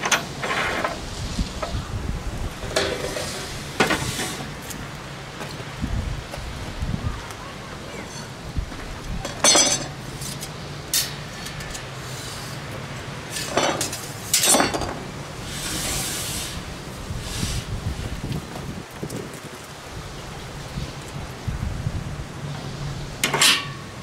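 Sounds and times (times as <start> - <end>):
metal tubing clanking: 9.2 - 11.9, 13.3 - 15.0, 23.2 - 23.9.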